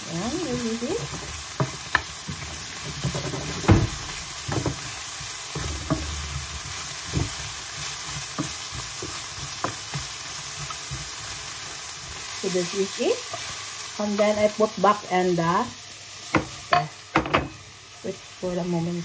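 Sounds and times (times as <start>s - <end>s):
carrots sizzling in oil: 0.0s - 19.0s
wooden spatula knocking pan: 0.5s - 12.3s, 16.3s - 17.6s.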